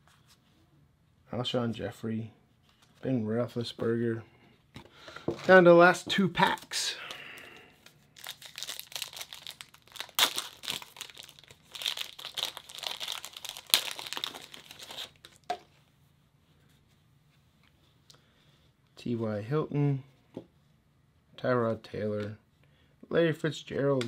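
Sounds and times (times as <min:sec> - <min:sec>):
foil wrapper tearing and crinkling: 0:08.2 - 0:15.4.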